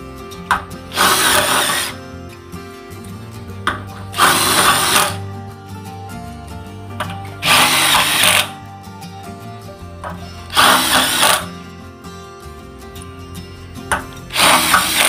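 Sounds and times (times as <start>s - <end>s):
impact wrench hammering: 0.5s - 2.0s, 3.7s - 5.2s, 7.4s - 8.5s, 10.0s - 11.5s, 13.9s - 15.0s.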